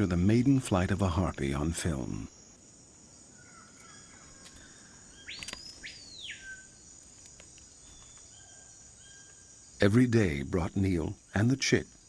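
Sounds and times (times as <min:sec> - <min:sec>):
faint bird chirps: 0:01.4 - 0:12.0
whistled bird call: 0:05.1 - 0:06.8.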